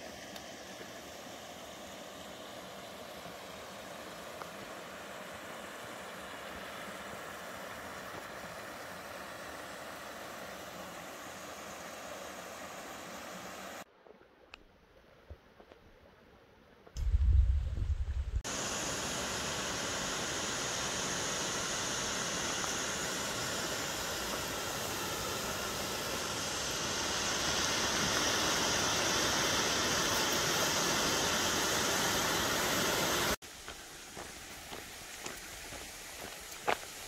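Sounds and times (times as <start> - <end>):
brief low rumble: 17.0 - 18.4
waterfall rushing: 18.5 - 33.4.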